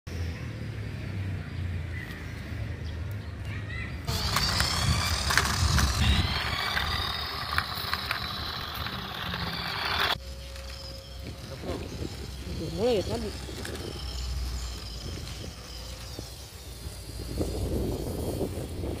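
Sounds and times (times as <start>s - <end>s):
scattered clicks: 4.1s - 10.8s
toy truck motor whine: 4.1s - 19.0s.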